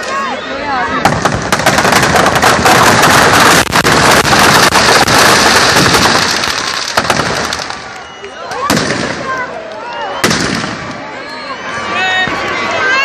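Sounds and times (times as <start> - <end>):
firecrackers popping: 0.9 - 11.0.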